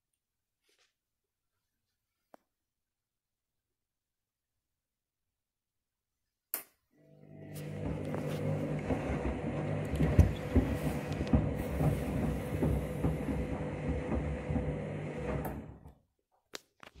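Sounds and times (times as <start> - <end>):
washing machine motor hum: 7.0 - 16.0
shoes knocking in drum: 10.0 - 14.8.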